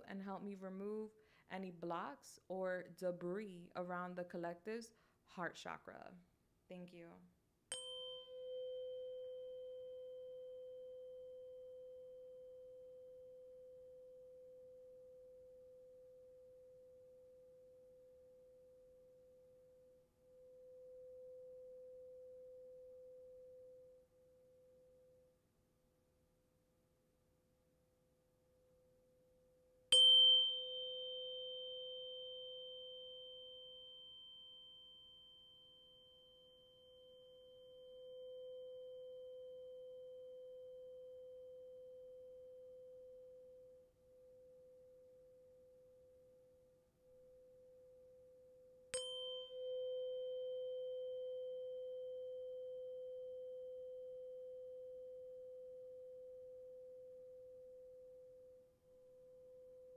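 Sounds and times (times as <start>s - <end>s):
tuning fork humming: 7.7s - 25.0s, 29.9s - 46.1s, 48.9s - 59.9s
tuning fork struck: 7.7s - 25.3s, 29.9s - 59.9s.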